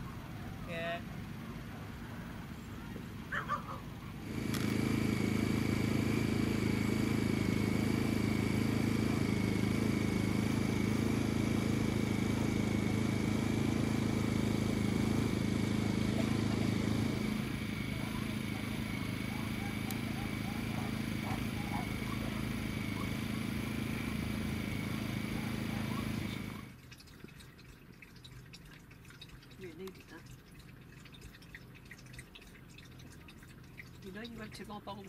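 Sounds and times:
steady engine hum: 0.0s - 35.0s
thin high whine: 4.2s - 26.7s.

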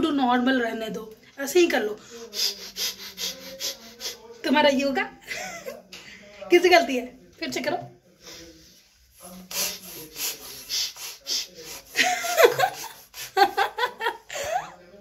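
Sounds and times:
breathy puffs of air: 2.0s - 4.2s, 9.2s - 13.4s
woman laughing: 12.0s - 14.7s.

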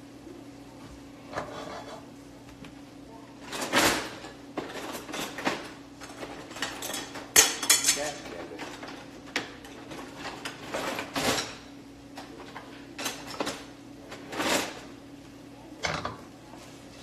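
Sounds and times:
dishes and utensils clattering: 1.3s - 2.0s, 3.4s - 11.7s, 12.3s - 14.9s.

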